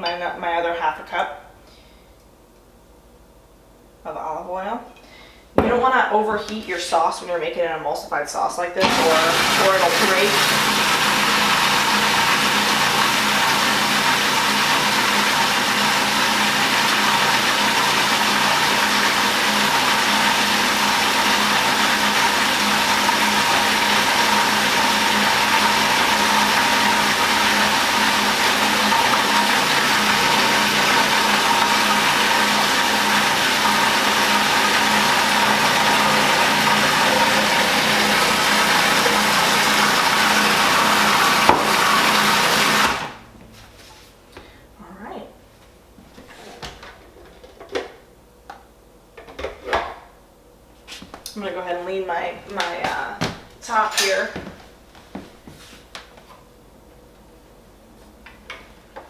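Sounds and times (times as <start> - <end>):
food processor motor running: 8.8 - 43.3.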